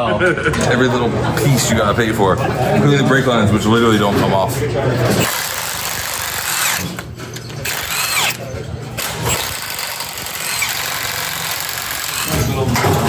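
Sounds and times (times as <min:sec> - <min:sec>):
cordless impact wrench bursts: 0:05.2 - 0:12.6.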